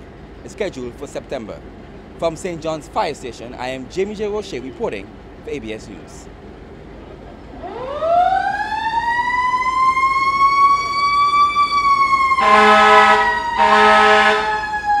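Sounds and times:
fire truck siren winding: 7.6 - 15.0
truck horn blasts: 12.4 - 14.7.

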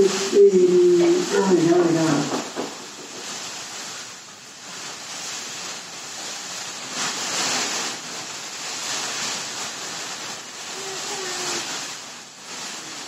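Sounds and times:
rushing surf-like noise: 4.9 - 11.9.

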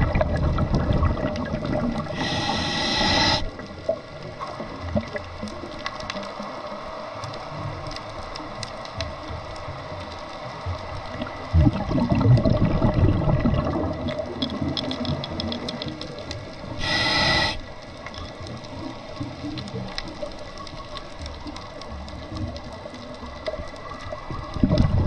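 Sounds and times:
exhaled bubbles rumbling: 0.0 - 6.0, 10.5 - 17.6, 18.4 - 25.0
faint crackle of clicks: 0.0 - 25.0
regulator hiss: 2.0 - 3.6, 16.7 - 17.8.

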